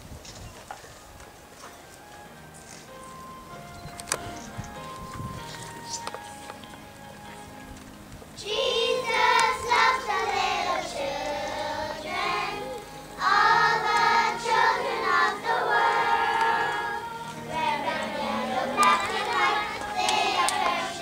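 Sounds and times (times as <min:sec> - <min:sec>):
children singing: 0:08.4 - 0:21.0.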